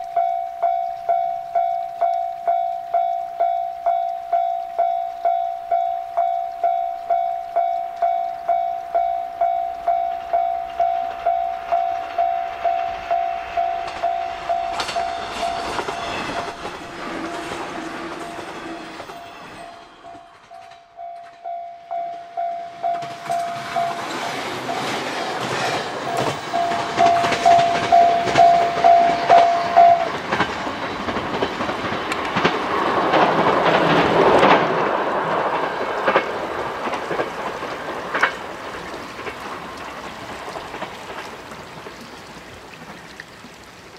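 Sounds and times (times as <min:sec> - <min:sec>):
level crossing bell ringing: 0:00.0 - 0:16.0, 0:19.6 - 0:25.4, 0:26.0 - 0:30.2
train wheels clattering: 0:09.5 - 0:41.4
train horn: 0:12.2 - 0:20.2.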